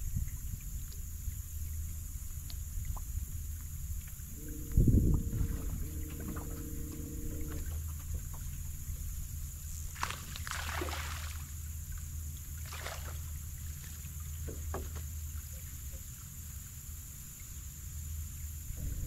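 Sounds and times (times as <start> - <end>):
low rumble: 4.0 - 9.9, 18.7 - 19.0.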